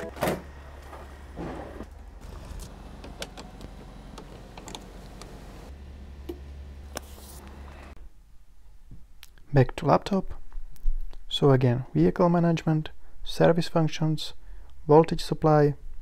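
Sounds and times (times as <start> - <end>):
low steady rumble: 0.5 - 8.8.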